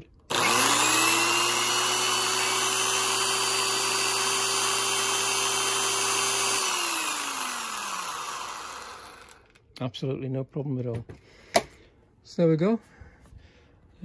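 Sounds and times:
electric drill whining: 0.3 - 9.6.

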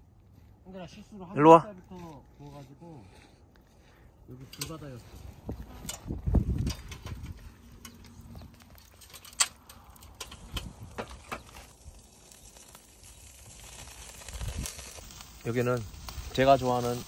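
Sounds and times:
fire crackling: 0.0 - 17.0
sharp pops of fire: 8.5 - 17.0.

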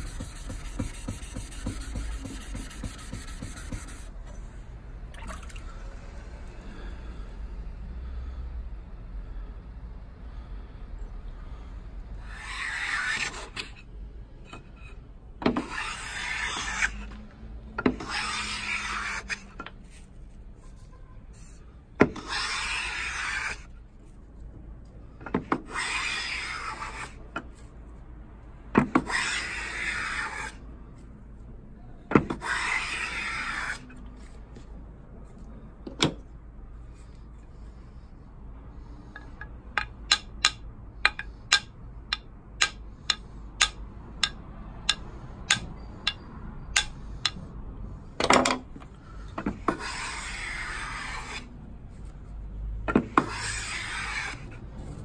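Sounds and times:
hand plane shaving wood: 0.0 - 4.1, 15.6 - 17.0, 17.9 - 19.4, 22.2 - 23.6, 25.7 - 27.2, 29.0 - 30.6, 32.4 - 33.8, 49.6 - 51.5, 53.1 - 54.5.

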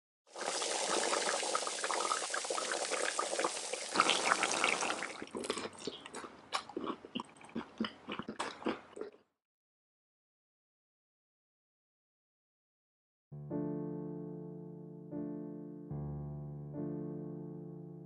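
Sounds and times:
food sizzling in frying pans: 0.3 - 5.2.

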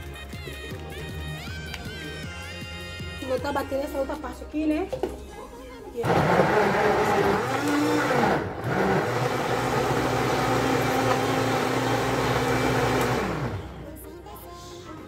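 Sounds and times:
blender motor running: 6.0 - 13.9.

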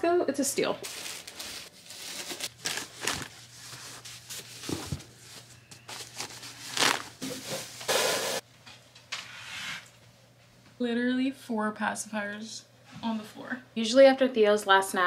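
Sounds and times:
diapers rustling and knocking: 0.8 - 8.4.

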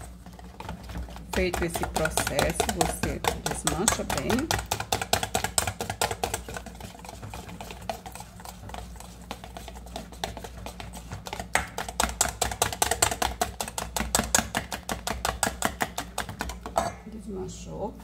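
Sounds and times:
wire whisk clicking in metal bowl: 1.3 - 5.9.

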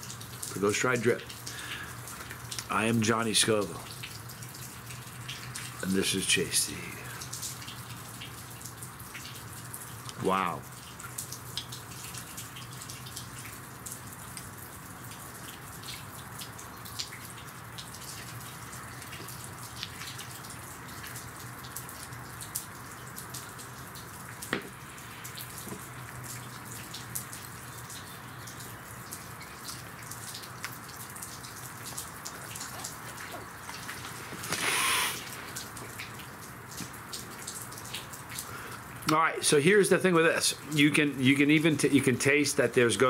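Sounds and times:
background hiss: 0.0 - 4.4, 24.4 - 43.0.

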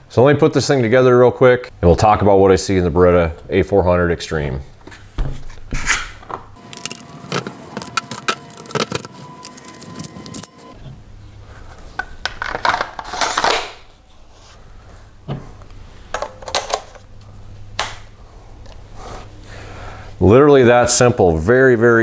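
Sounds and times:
metal clicks and rattles: 6.6 - 10.6.

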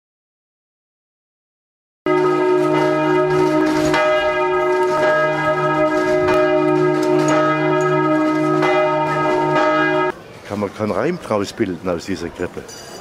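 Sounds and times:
church bells ringing: 2.1 - 10.2.

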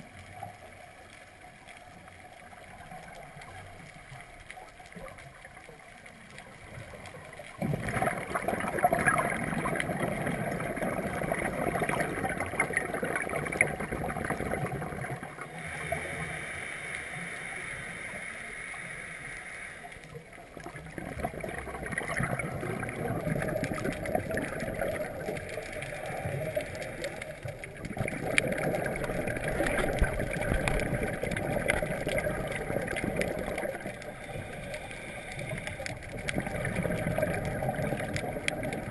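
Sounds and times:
diver exhaling bubbles underwater: 7.6 - 16.0, 20.5 - 38.9
regulator hiss: 15.5 - 20.3, 33.8 - 36.0.

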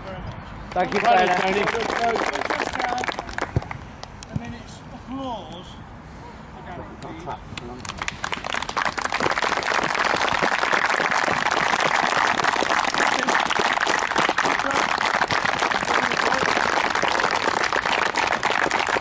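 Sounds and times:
crowd applause: 0.8 - 3.8, 7.9 - 19.0.

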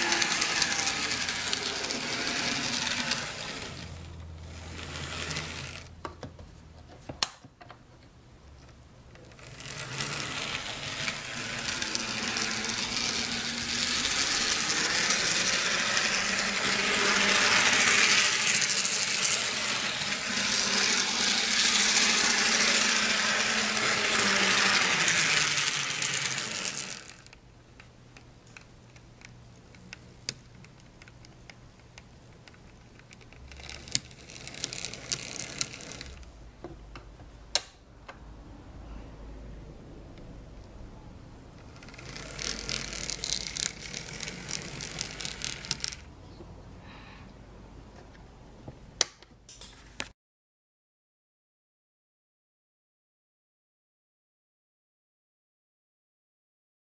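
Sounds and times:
toy motor and gears whirring: 0.0 - 6.0, 9.2 - 27.4, 31.8 - 36.3, 41.6 - 46.1.

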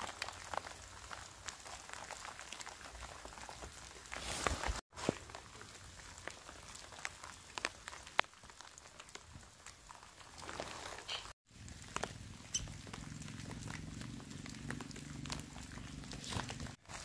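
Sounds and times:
light rain hiss: 0.0 - 17.0
raindrops ticking on tent: 0.0 - 17.0.

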